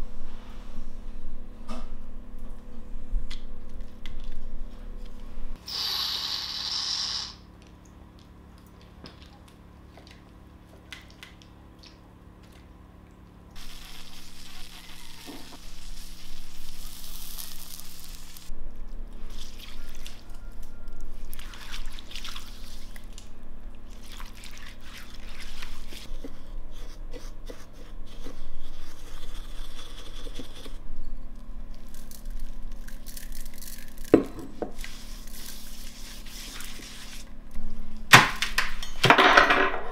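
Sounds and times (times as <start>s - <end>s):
short hiss: 5.6s - 7.4s.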